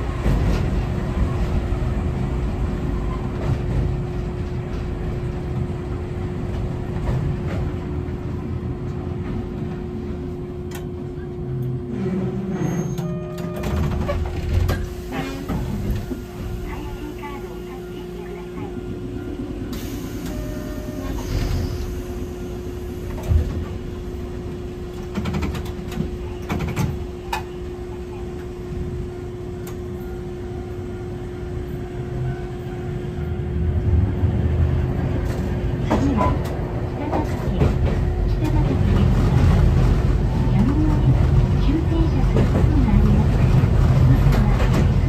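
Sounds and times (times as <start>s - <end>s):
streetcar humming: 0.0s - 45.0s.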